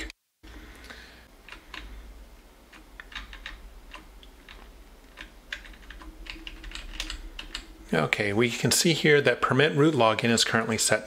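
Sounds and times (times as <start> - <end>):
keyboard keys clicking: 2.7 - 7.7.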